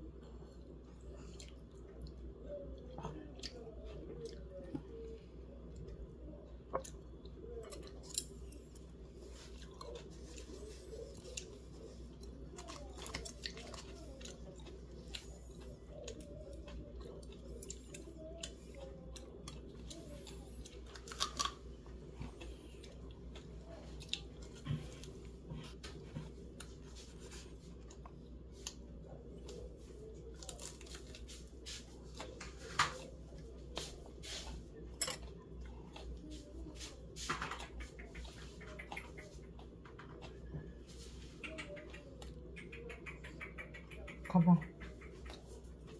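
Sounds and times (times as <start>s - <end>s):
person chewing: 0.0s - 36.9s
steady low hum: 0.0s - 45.9s
crispy food crackling: 0.6s - 37.2s.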